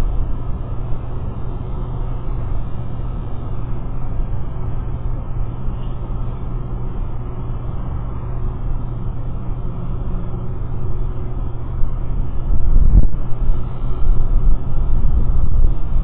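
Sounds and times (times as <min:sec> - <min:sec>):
distant city traffic: 0:00.0 - 0:16.0
wind rumble: 0:00.0 - 0:16.0.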